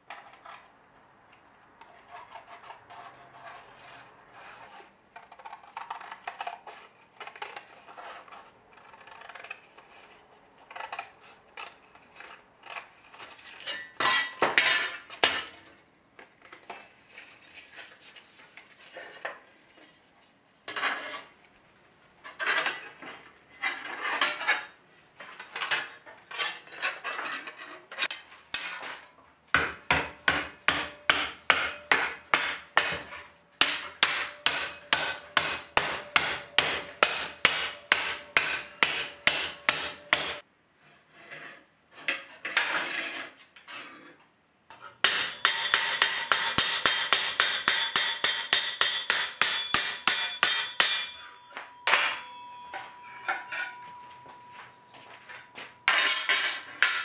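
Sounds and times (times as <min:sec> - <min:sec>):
shears cutting sheet steel: 0:28.0 - 0:40.4, 0:45.0 - 0:51.8
hammer ringing on steel plate: 0:28.6 - 0:40.4, 0:45.1 - 0:56.3.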